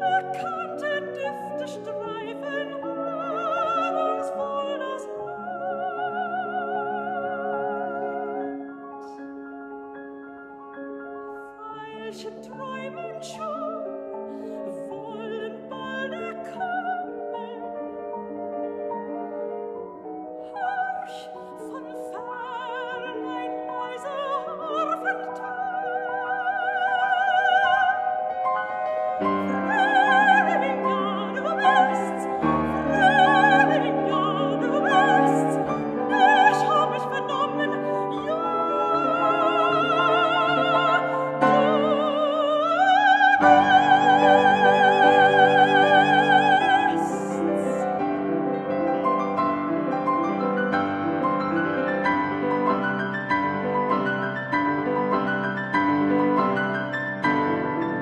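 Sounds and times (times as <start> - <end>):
soprano singing operatically: 0.0 - 8.7, 11.4 - 19.2, 20.3 - 49.7
piano accompaniment: 0.0 - 58.0.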